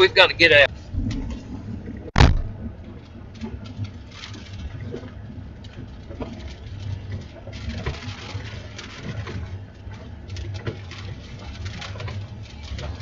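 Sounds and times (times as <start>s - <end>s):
wind buffeting microphone: 0.3s - 3.6s.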